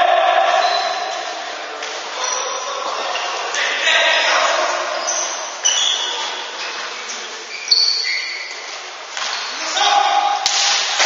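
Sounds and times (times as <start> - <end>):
players calling out: 0.0 - 6.5
sneakers squeaking on court: 4.9 - 9.6.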